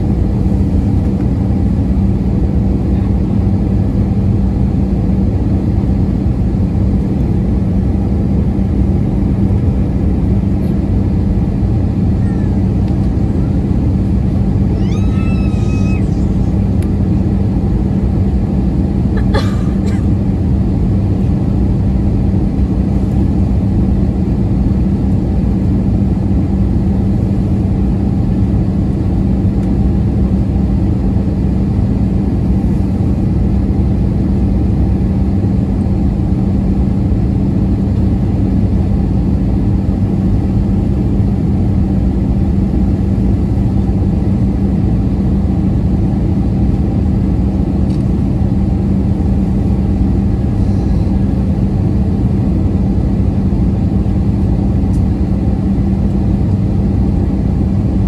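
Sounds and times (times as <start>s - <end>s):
airplane cabin engine rumble: 0.0s - 58.0s.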